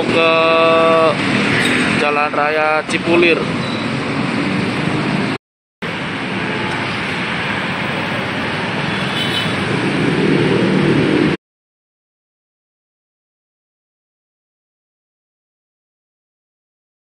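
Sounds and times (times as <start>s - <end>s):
road traffic passing cars: 0.0s - 11.4s.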